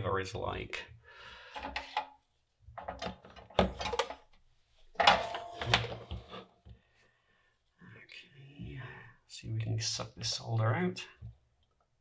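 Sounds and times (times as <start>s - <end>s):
objects clattering on a bench: 2.8s - 4.2s.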